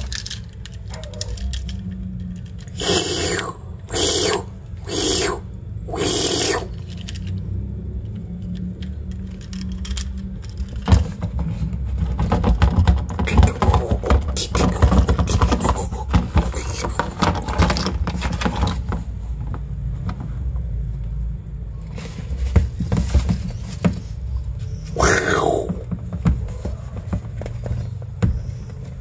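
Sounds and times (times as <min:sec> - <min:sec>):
plastic toy clicking and rattling: 0:00.0 - 0:03.5, 0:06.8 - 0:07.4, 0:08.1 - 0:11.1.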